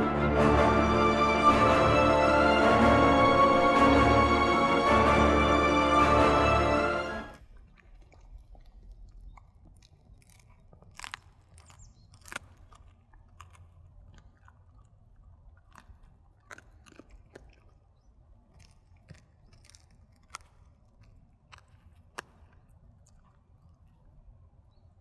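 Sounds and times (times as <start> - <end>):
dog crunching bones: 7.3 - 24.4.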